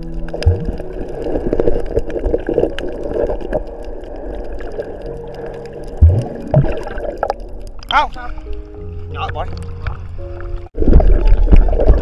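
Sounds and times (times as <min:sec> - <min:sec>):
small clicks and splashes: 0:00.0 - 0:07.9
water sloshing and gurgling: 0:00.0 - 0:12.0
faint backing tune: 0:07.8 - 0:10.7.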